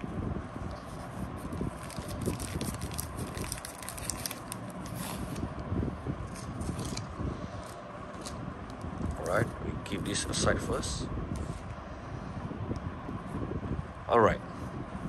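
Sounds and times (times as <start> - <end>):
wrapper crinkling and rustling: 1.4 - 5.5.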